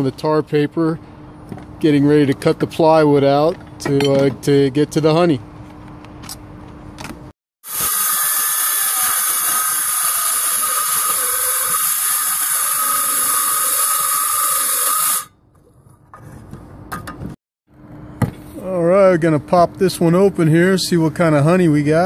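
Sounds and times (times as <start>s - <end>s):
circular saw motor whine: 7.6s - 15.3s
saw blade hissing through wood: 7.6s - 15.3s.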